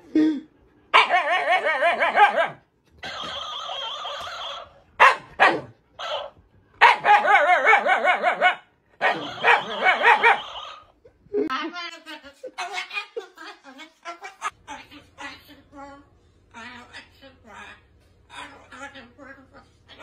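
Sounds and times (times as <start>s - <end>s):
dog yipping: 1.0s - 2.6s, 5.0s - 10.8s.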